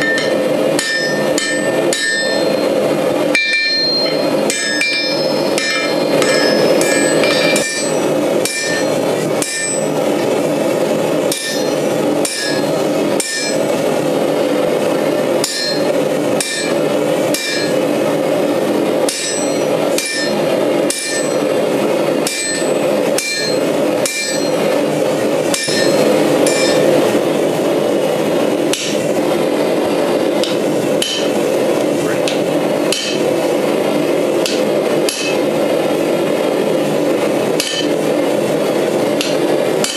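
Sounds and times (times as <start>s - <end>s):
hammer ringing on anvil: 0.0s - 10.0s, 11.3s - 13.7s, 15.4s - 17.9s, 19.0s - 21.5s, 22.2s - 24.7s, 25.5s - 27.2s, 30.4s - 31.4s, 32.3s - 33.4s, 34.4s - 35.5s, 37.6s - 38.1s
forge rushing noise: 0.0s - 39.9s.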